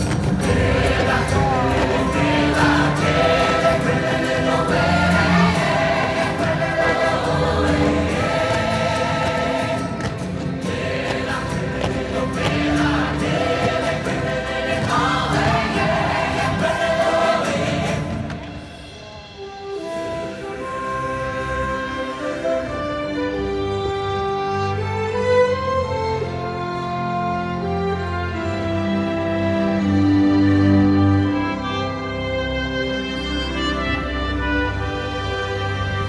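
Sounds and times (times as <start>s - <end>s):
choir singing over music: 0.0s - 19.0s.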